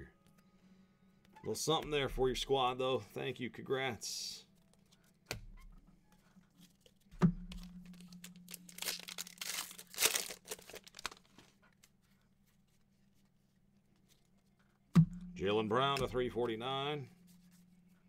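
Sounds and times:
plastic wrapper tearing and crinkling: 0:07.6 - 0:11.6.

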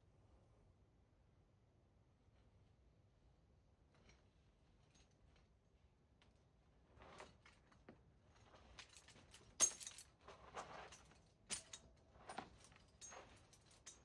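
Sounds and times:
metal climbing gear clinking: 0:07.0 - 0:14.0
soft rustling: 0:12.1 - 0:14.0.

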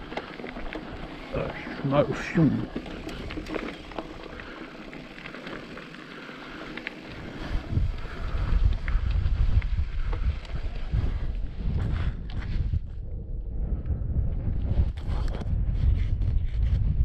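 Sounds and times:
bike rattling over stones: 0:00.0 - 0:12.4
wind buffeting microphone: 0:00.0 - 0:17.0.

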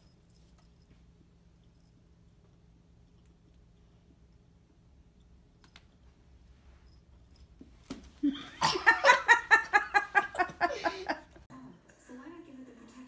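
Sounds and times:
person laughing hard: 0:08.2 - 0:11.4.

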